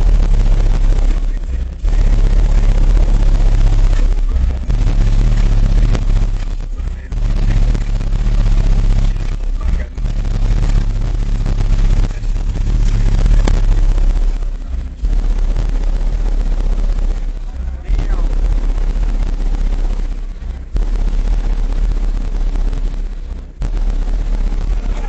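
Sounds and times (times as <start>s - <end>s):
distorted subwoofer bass rumble: 0.0s - 25.0s.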